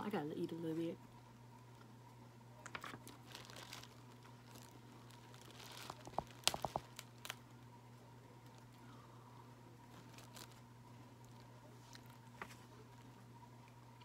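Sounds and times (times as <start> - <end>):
crab shells crackling and clicking: 3.5 - 7.5
crab shells snapping: 6.0 - 7.4.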